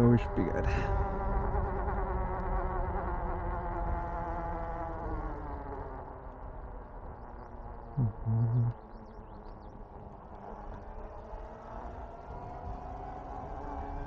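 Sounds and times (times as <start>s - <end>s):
electric bike motor whining: 9.4s - 14.0s.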